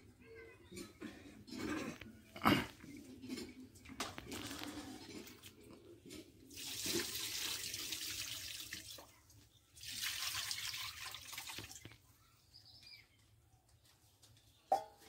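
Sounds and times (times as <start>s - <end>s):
water splashing onto meat: 9.8s - 12.0s.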